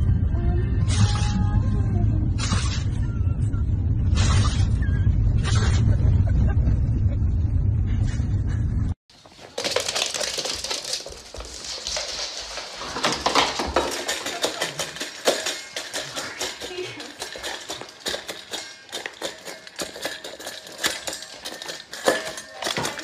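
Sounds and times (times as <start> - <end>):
dog claws clattering on floor: 9.2 - 23.0.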